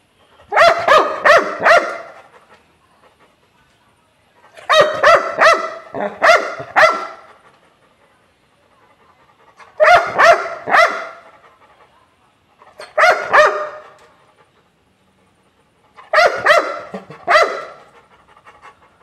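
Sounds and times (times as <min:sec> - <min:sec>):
dog barking: 0:00.5 - 0:02.2, 0:04.6 - 0:07.3, 0:09.7 - 0:11.3, 0:12.8 - 0:14.0, 0:16.0 - 0:17.9.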